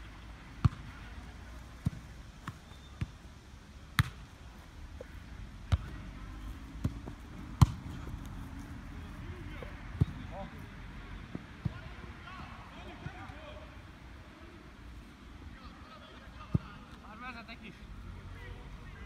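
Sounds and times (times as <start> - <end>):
football thuds: 0.6 - 0.9, 3.9 - 4.3, 6.8 - 8.3.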